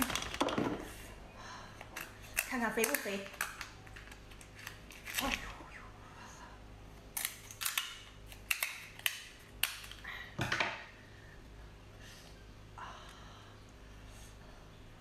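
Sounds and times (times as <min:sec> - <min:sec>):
shell cracking open: 0:07.1 - 0:10.0.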